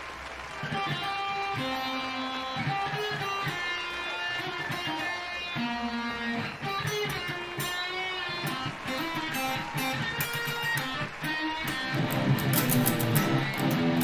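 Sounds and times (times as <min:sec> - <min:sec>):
electric guitar melody: 0:00.0 - 0:14.0
strummed guitar chords: 0:00.6 - 0:14.0.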